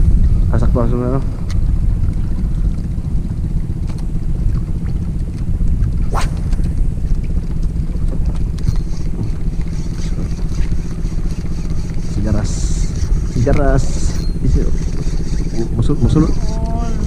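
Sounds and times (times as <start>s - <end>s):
boat engine running: 0.0s - 17.0s
sharp swish: 6.1s - 6.8s.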